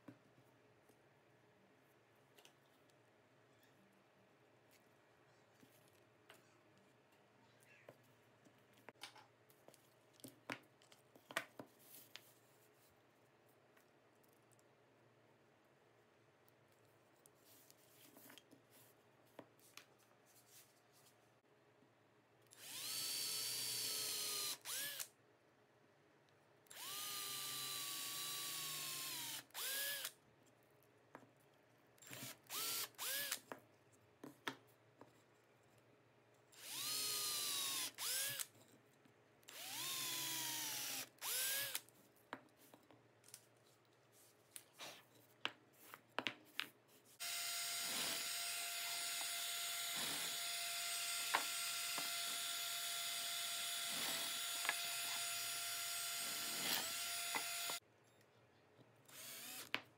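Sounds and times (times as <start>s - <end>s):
power drill boring into plywood: 22.6s - 25.1s, 26.7s - 30.1s, 32.2s - 33.4s, 36.6s - 38.5s, 39.5s - 41.8s, 47.2s - 57.8s, 59.1s - 59.7s
drill trigger blips: 26.7s - 30.1s, 32.2s - 33.4s, 36.6s - 38.5s, 39.5s - 41.8s, 47.2s - 57.8s, 59.1s - 59.7s
drill press motor humming: 36.6s - 38.4s, 39.5s - 41.8s, 47.2s - 57.8s.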